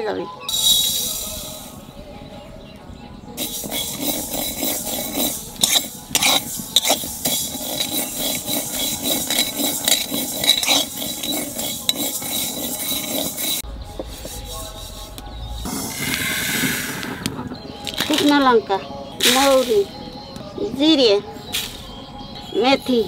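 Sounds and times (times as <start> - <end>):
seeds rattling in a metal pan: 3.4 - 13.6.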